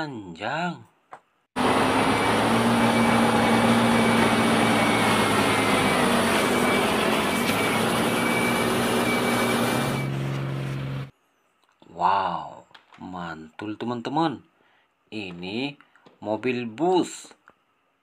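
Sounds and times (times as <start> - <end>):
truck engine droning: 1.6 - 11.1
thin high whine: 2.0 - 11.1.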